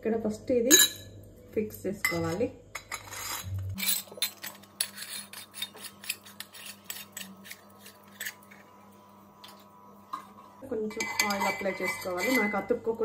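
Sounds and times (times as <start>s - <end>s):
metal scraping on metal: 2.8s - 12.8s.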